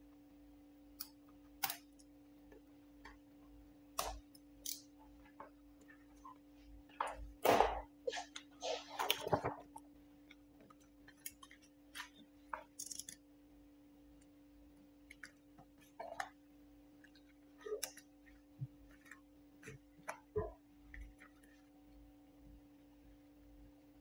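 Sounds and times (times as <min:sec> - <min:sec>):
steady low hum: 0:00.0 - 0:24.0
film rustling: 0:06.9 - 0:13.1.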